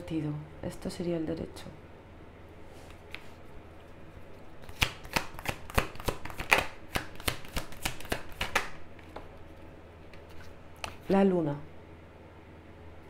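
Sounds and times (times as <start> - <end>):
card snaps and slaps: 4.6 - 8.8
cards being shuffled: 4.6 - 9.3, 10.1 - 11.2.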